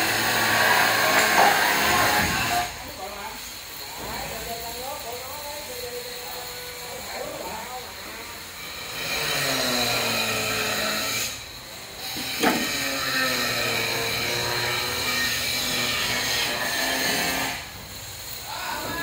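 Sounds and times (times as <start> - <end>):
power tool motor running: 8.6 - 17.8.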